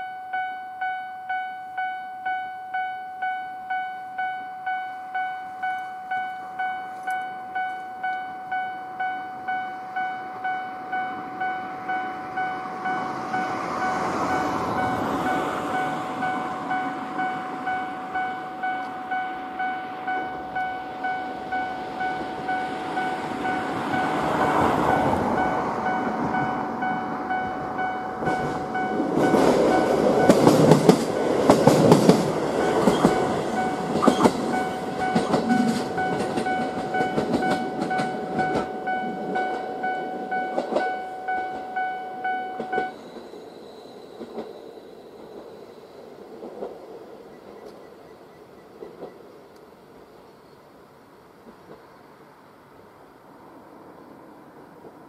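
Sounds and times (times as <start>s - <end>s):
warning bell ringing: 0.0s - 30.9s, 32.4s - 43.1s
train wheels clattering over rail joints: 28.2s - 38.7s.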